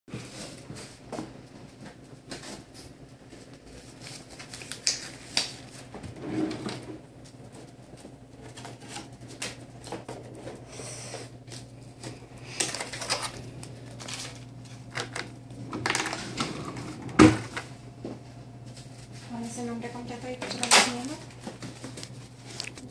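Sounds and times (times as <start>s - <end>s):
steady low hum: 0.1s - 22.9s
medical supplies clicking and rattling: 11.5s - 17.7s, 20.3s - 22.9s.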